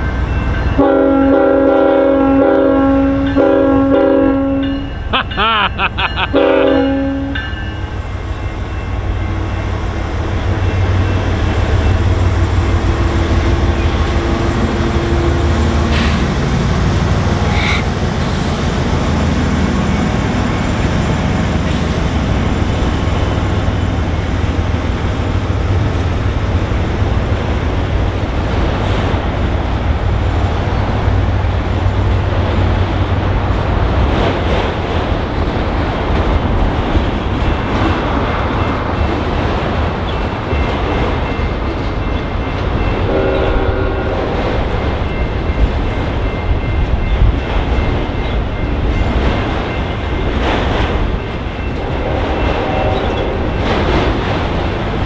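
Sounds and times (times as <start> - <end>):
diesel locomotive engine drone: 0.0 - 55.0
rail cars rolling rumble: 0.0 - 55.0
locomotive horn blast: 0.8 - 4.9, 6.3 - 7.5, 43.0 - 44.5, 51.8 - 53.5.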